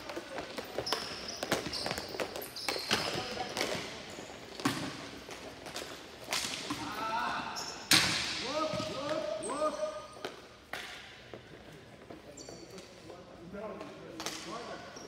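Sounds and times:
hockey sticks clacking: 0.0 - 7.0, 13.8 - 14.7.

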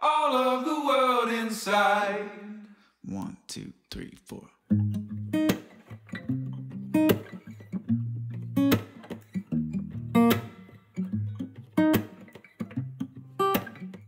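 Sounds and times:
acoustic guitar strumming: 4.7 - 14.0.

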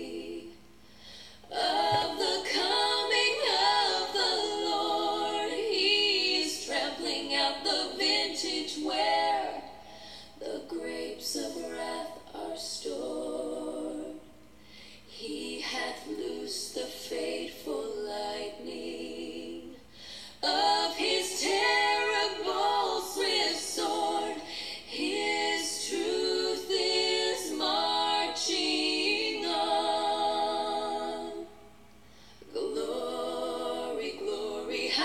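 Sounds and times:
woman singing: 1.5 - 9.7.

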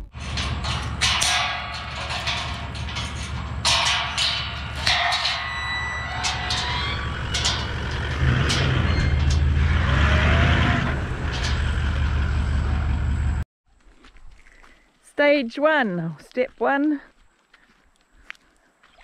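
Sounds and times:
gate squeak: 0.0 - 13.3
vehicle engine running: 0.0 - 13.4
metal gate knocks: 0.1 - 12.6.

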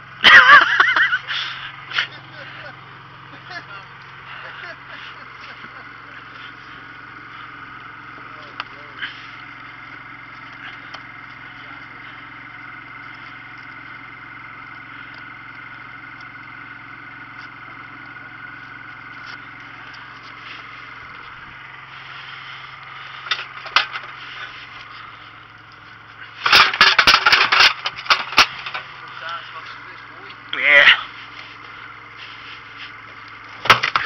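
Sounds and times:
boat motor humming: 0.0 - 34.0.

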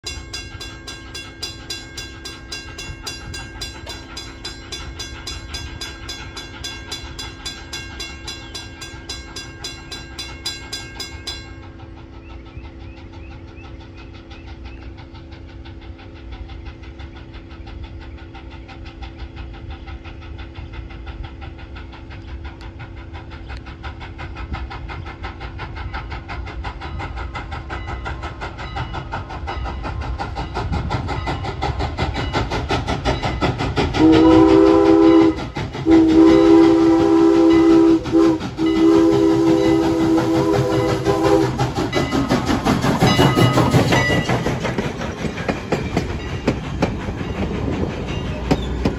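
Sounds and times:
crossing warning bell ringing: 0.0 - 12.1, 33.2 - 48.9
steam train approaching: 0.0 - 48.9.

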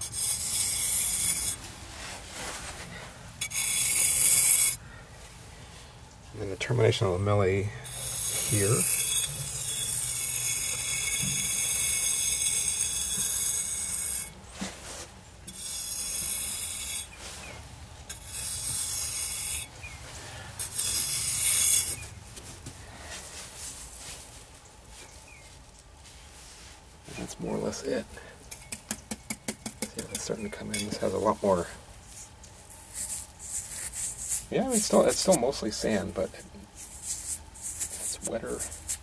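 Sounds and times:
trowel scraping sandy soil: 0.0 - 1.6, 7.9 - 14.3, 18.1 - 19.7, 20.6 - 22.1, 28.8 - 39.0.

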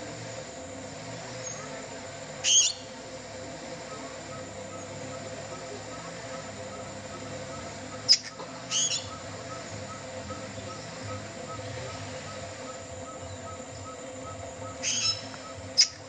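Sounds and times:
steady low hum: 0.0 - 16.0
bird harsh call: 2.4 - 3.0, 5.9 - 16.0.

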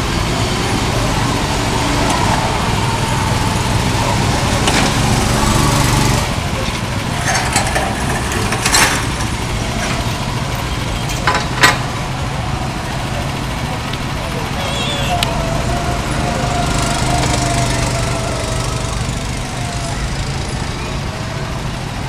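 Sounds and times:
small gasoline engine running: 0.0 - 22.0
sharp clacks: 4.6 - 10.2.

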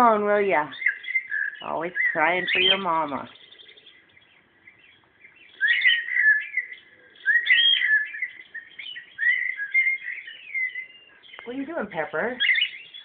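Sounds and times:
cockatiel whistling: 5.5 - 11.5.

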